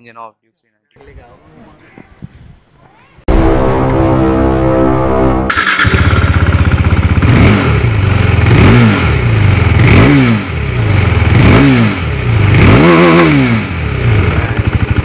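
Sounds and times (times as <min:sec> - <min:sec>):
motorcycle engine idling: 0:05.6 - 0:07.3, 0:13.9 - 0:15.0.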